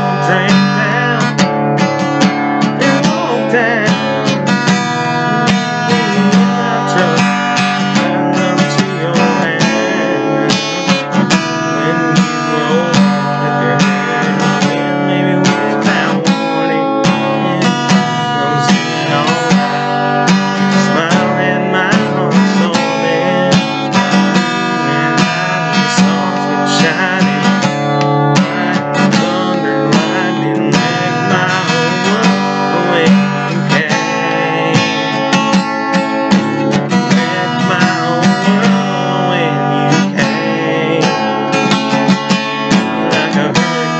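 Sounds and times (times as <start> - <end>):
acoustic guitar strumming: 0.0 - 43.9.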